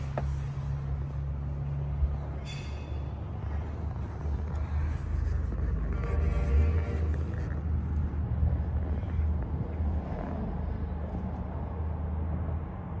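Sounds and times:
diesel engine idling: 0.0 - 11.1.

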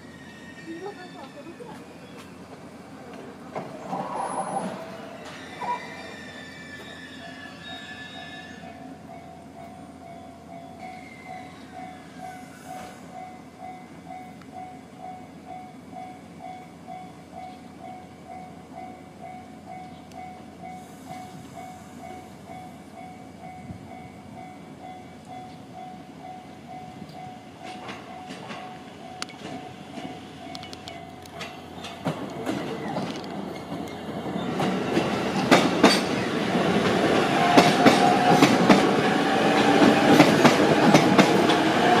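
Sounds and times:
train wheels clacking over rail joints: 27.6 - 42.0.

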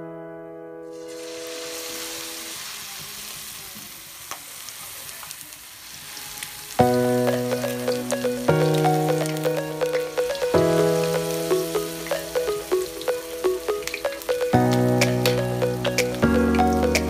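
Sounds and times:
piano music: 0.0 - 2.3, 6.8 - 17.0
oil sizzling with pops: 0.9 - 17.0.

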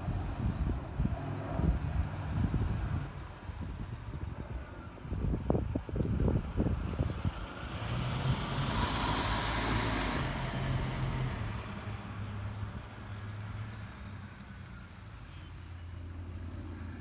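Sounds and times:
gusty low rumble: 0.0 - 8.6
turboprop plane climbing overhead: 0.0 - 13.2, 15.9 - 17.0
low propeller drone: 0.0 - 17.0.

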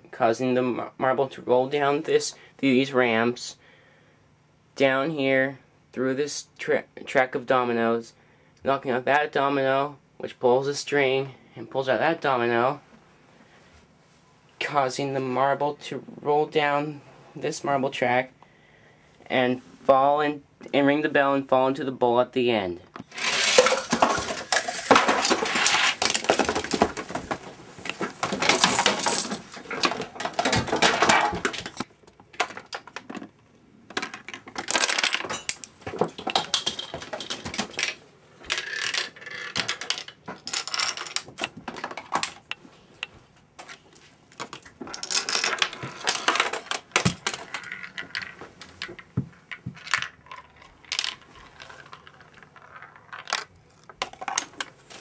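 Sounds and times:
marbles and dominoes clattering: 23.1 - 27.0, 28.2 - 31.8, 33.9 - 42.5, 44.5 - 54.6.

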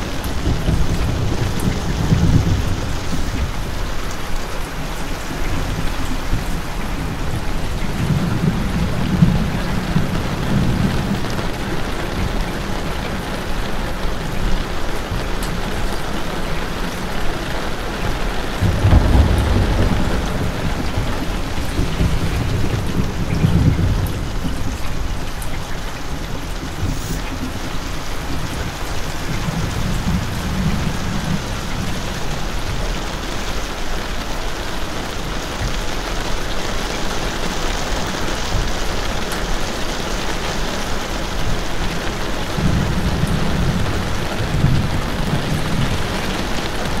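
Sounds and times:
steady rain hiss: 0.0 - 47.0
deep rumbles: 18.6 - 31.9.

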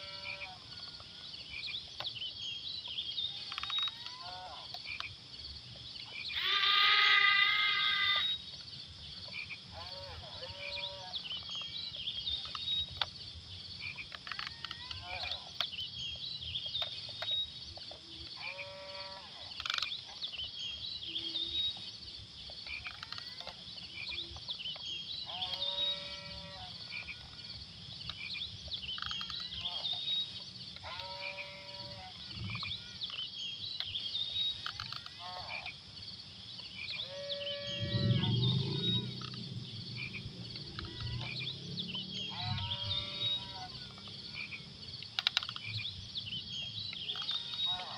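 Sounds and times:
frogs croaking: 0.0 - 47.9
high chirping chorus: 22.5 - 47.9.

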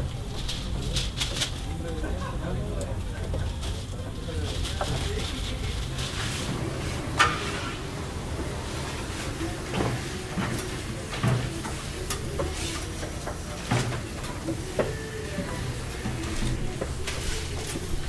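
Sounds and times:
metal scraper on griddle: 6.0 - 7.8.

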